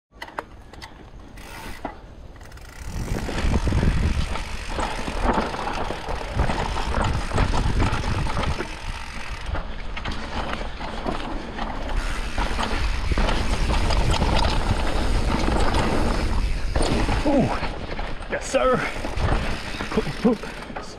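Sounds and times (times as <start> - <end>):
bike rattling over bumps: 0.2 - 20.9
bike tyre and trail noise: 0.2 - 20.9
wind rumble on microphone: 2.8 - 10.1, 12.8 - 18.0.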